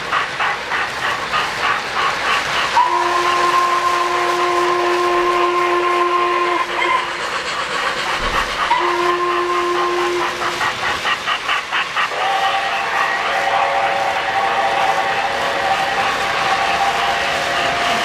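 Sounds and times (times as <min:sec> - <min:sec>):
model train wheels clicking: 0:00.0 - 0:18.0
model train whistle blast: 0:02.8 - 0:07.1, 0:08.7 - 0:10.5.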